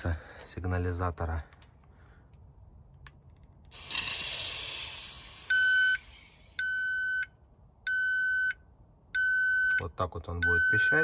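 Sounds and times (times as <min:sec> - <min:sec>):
gas spray hiss: 0:03.7 - 0:06.6
electronic alarm beeps: 0:05.5 - 0:06.0, 0:06.6 - 0:08.6, 0:09.2 - 0:11.0.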